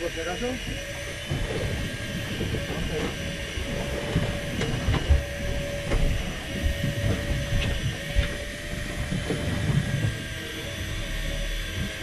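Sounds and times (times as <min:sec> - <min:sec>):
fishing reel humming: 0:00.0 - 0:12.0
wind buffeting microphone: 0:01.1 - 0:11.0.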